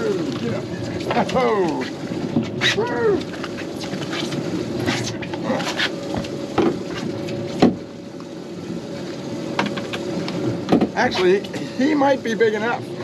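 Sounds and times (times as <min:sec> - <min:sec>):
boat engine humming: 0:00.0 - 0:13.0
knocks and thumps on boat: 0:06.1 - 0:07.9, 0:09.6 - 0:11.1.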